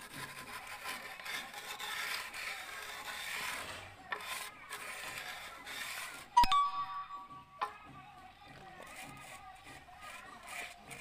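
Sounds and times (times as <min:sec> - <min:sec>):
trowel scraping wet mortar: 0:00.0 - 0:06.4, 0:08.7 - 0:11.0.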